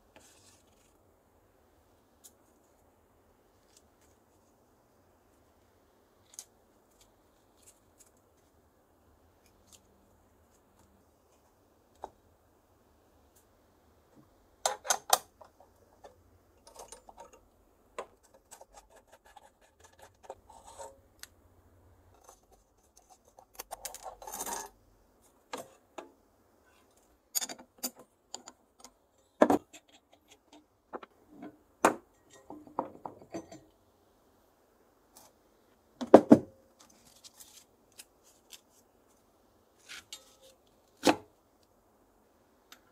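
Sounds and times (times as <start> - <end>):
screwdriver scraping rattle: 22.2 - 24.7.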